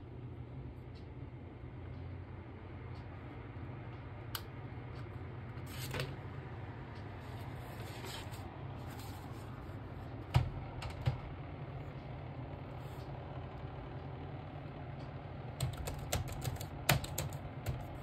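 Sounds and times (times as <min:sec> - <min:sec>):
cooling fans humming: 0:00.0 - 0:18.0
keyboard typing: 0:15.6 - 0:18.0.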